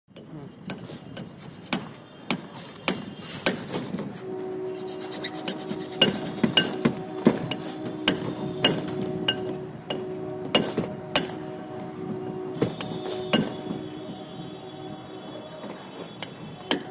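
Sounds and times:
steady pitched hum: 3.5s - 16.9s.

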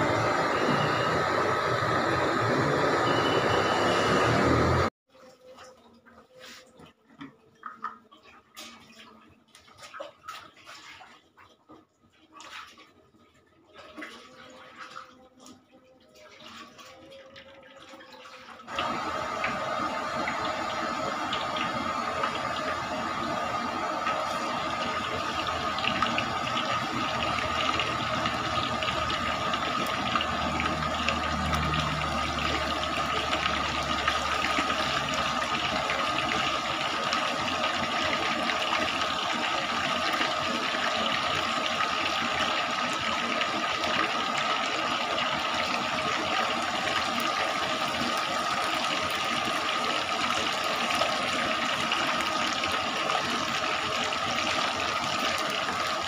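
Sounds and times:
chicken sizzling in hot oil: 18.7s - 56.0s.

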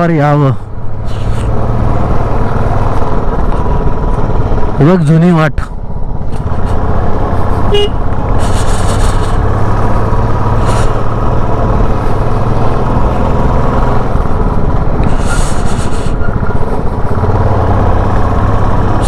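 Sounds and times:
motorcycle engine running: 0.0s - 19.0s
short hissy bursts: 8.4s - 9.4s.

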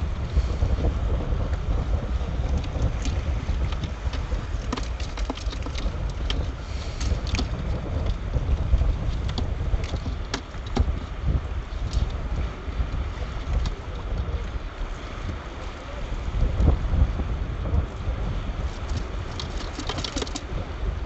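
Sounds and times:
wind buffeting microphone: 0.0s - 21.0s
clicks taps and rustles: 2.5s - 11.1s, 18.8s - 20.6s.

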